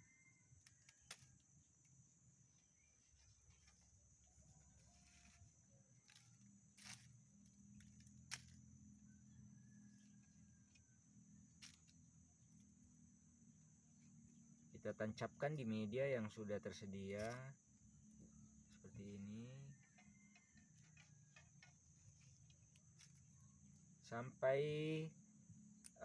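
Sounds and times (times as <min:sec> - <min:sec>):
faint outdoor hum: 0:00.0 - 0:26.0.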